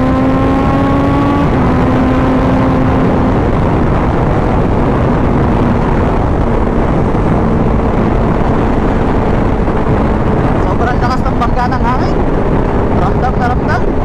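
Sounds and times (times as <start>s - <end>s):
motorcycle engine hum: 0.0s - 14.0s
wind rushing over microphone: 0.0s - 14.0s.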